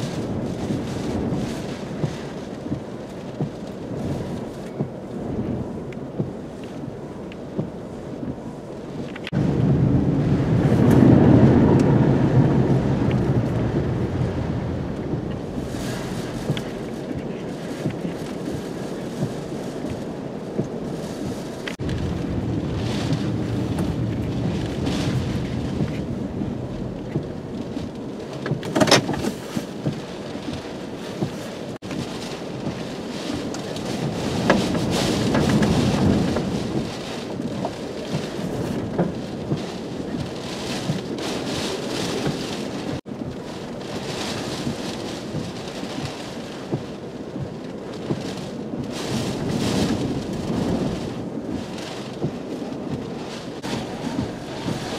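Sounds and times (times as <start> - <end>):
rain driving against vehicle: 0.0 - 54.9
wind gusting over microphone: 0.0 - 54.9
sharp raindrop hits: 9.0 - 30.6.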